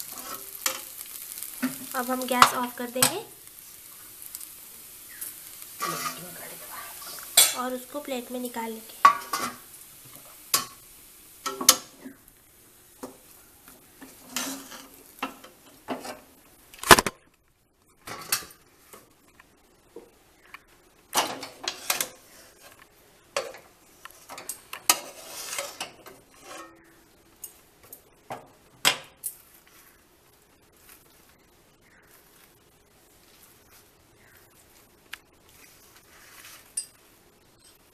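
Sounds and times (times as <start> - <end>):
steel spatula scraping a pot: 0.0 - 1.0, 14.0 - 15.0, 24.2 - 26.8.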